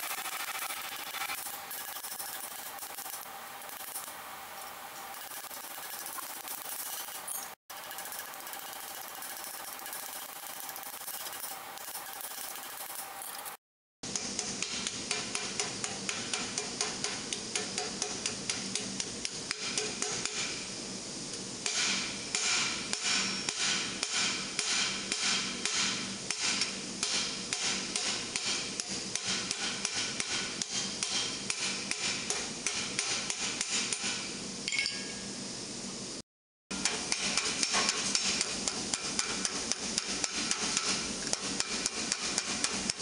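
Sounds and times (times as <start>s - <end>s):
hammer striking steel: 21.6s - 35.2s, 36.7s - 43.0s.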